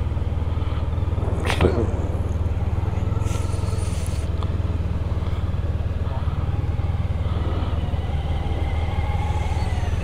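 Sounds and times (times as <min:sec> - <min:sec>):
motorcycle engine running at low revs: 0:00.0 - 0:10.0.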